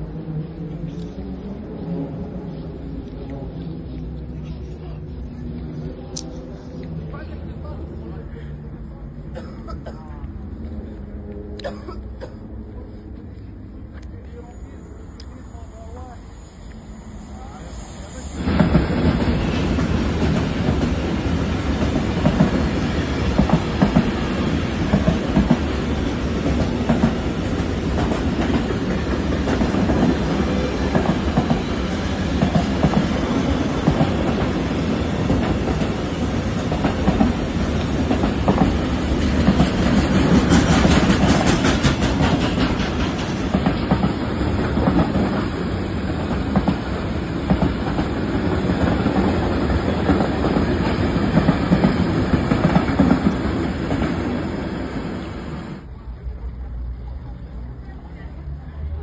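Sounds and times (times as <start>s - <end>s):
freight train wagons rumbling: 0.0s - 59.0s
train wheels clacking over rails: 18.4s - 55.7s.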